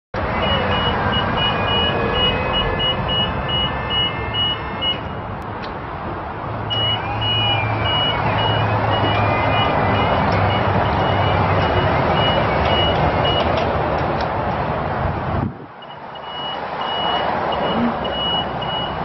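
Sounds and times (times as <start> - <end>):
lift motion alarm beeping: 0.4 - 5.0, 6.7 - 13.6, 15.8 - 19.0.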